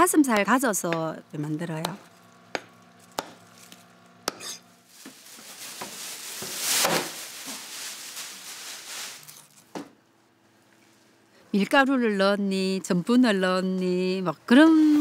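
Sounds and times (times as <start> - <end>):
knife chopping on cutting board: 1.8 - 3.5, 4.2 - 4.6.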